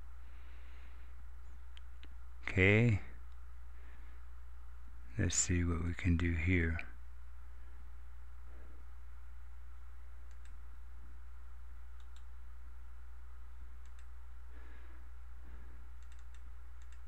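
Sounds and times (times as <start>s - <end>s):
steady low hum: 0.0s - 17.0s
computer mouse clicking: 10.2s - 10.6s, 11.9s - 12.3s, 13.8s - 14.2s, 16.0s - 17.0s.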